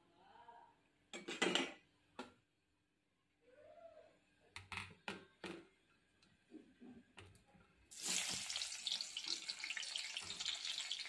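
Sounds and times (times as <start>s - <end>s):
onion frying in hot oil: 7.9s - 11.0s.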